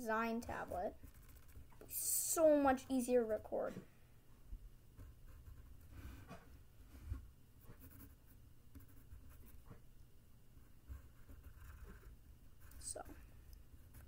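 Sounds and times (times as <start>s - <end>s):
pencil scratching on paper: 0.5s - 1.8s, 5.0s - 6.4s, 7.6s - 9.8s, 10.6s - 14.0s.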